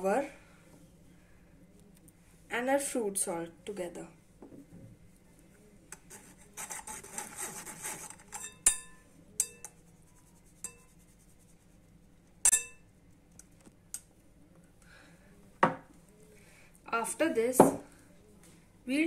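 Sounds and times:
spoon scraping flour through sieve: 0:06.0 - 0:08.6, 0:09.4 - 0:11.8.

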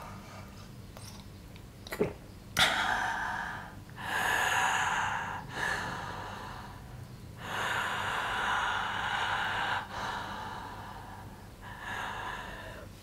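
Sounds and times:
person breathing heavily: 0:02.6 - 0:13.0.

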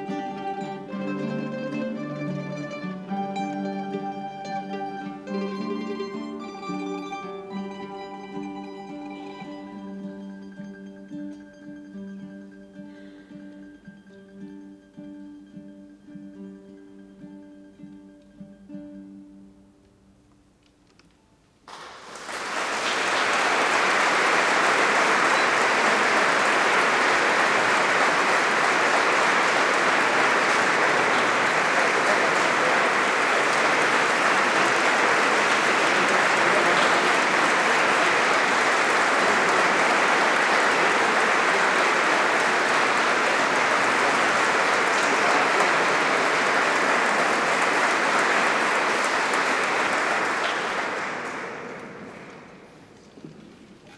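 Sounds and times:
audience applauding: 0:00.0 - 0:10.2, 0:21.6 - 0:53.4.

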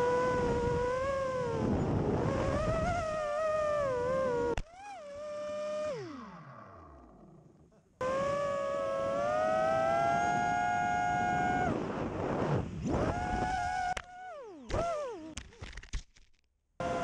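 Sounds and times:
wind rushing past microphone: 0:00.0 - 0:04.6, 0:08.0 - 0:14.0
drone motors whining: 0:00.0 - 0:15.4, 0:16.8 - 0:17.0.

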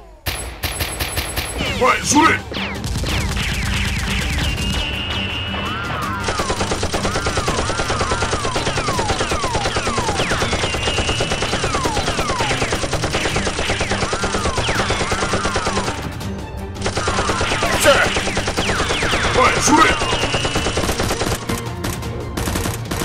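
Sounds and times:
automatic gunfire: 0:00.3 - 0:01.6, 0:06.2 - 0:16.2, 0:16.8 - 0:21.6.

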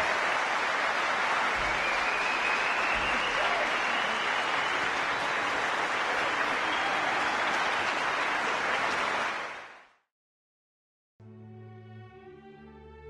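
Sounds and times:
large audience applauding: 0:00.0 - 0:10.0.

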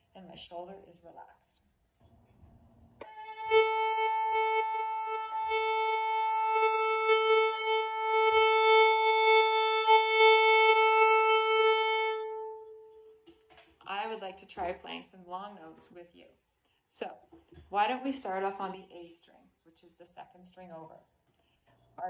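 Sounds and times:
violin long bowed note: 0:03.0 - 0:13.4.

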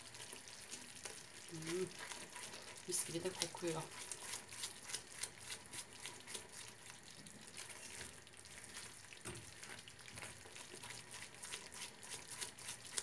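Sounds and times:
spatula scraping in frying pan: 0:00.3 - 0:09.0.

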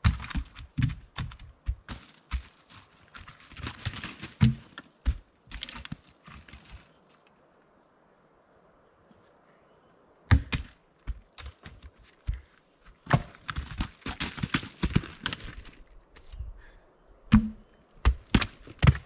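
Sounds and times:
logs thudding and knocking: 0:00.0 - 0:06.9, 0:10.3 - 0:16.4, 0:17.3 - 0:19.0.

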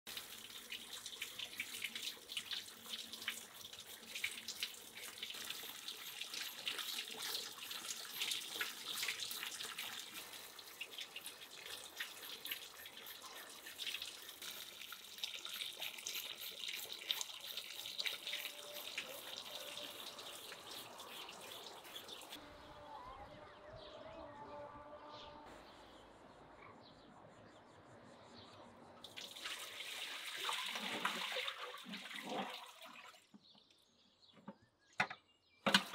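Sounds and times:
faint outdoor sound: 0:00.0 - 0:35.9
knife scraping hooves: 0:11.9 - 0:22.4
tap water splashing into metal tray: 0:29.0 - 0:33.4.

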